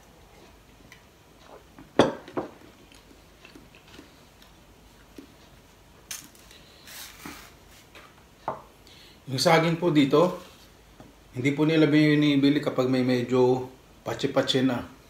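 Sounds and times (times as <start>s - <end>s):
banana being peeled: 6.2s - 7.9s.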